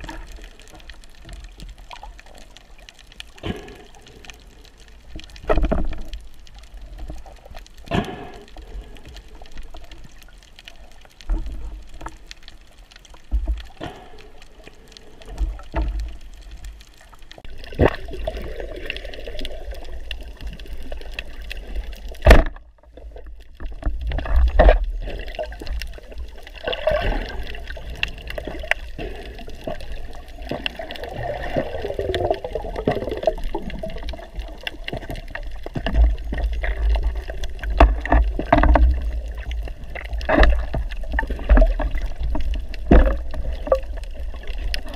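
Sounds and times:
water gurgling underwater: 0.0 - 4.4, 15.2 - 44.9
low underwater rumble: 0.0 - 44.9.

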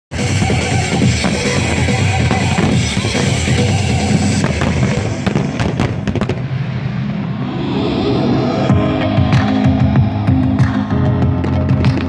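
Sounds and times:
loud music: 0.1 - 12.0
fireworks crackling and popping: 0.2 - 6.8.

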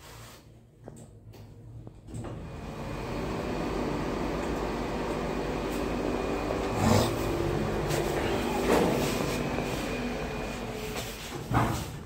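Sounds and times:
train running noise: 7.1 - 12.0.

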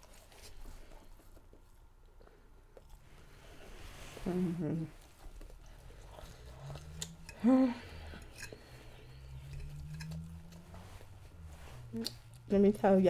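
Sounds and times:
person making short vocal sound: 7.4 - 7.9.

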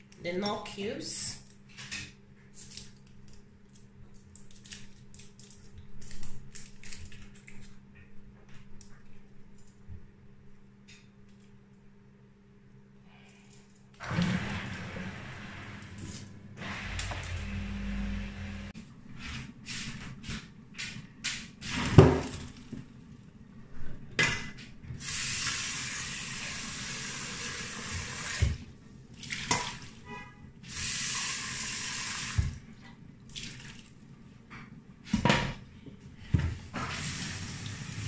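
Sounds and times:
foil wrapper crinkling: 2.5 - 7.8
low hum: 12.6 - 18.8.

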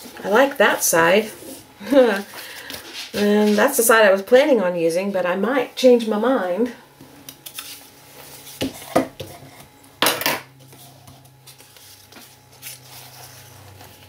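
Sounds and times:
paper rustling: 10.7 - 14.0.

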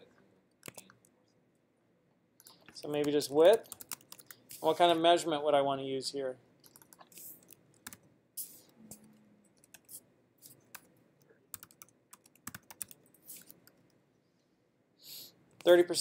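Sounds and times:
typing on a computer keyboard: 0.6 - 1.0, 2.4 - 4.4, 6.6 - 8.1, 11.5 - 14.0.

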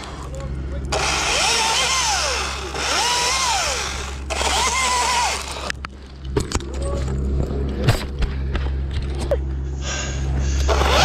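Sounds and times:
chainsaw cutting branches: 0.9 - 5.8, 10.6 - 11.0.

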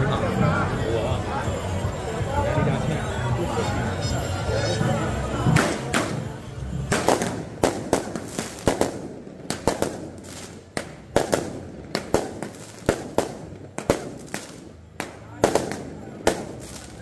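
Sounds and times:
firecrackers banging: 5.3 - 17.0.

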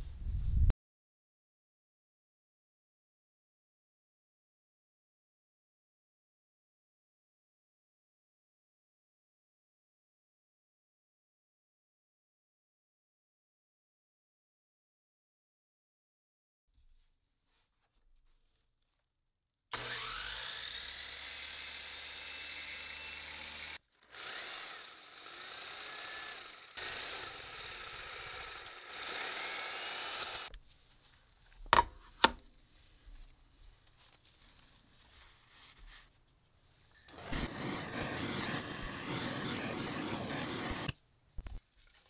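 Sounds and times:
power saw cutting bread: 19.7 - 30.5, 37.1 - 41.0.

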